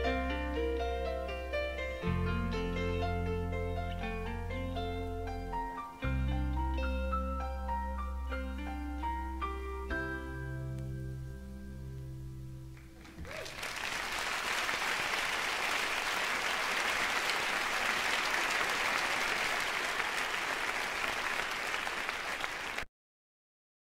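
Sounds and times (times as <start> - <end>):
audience applauding: 12.8 - 22.9.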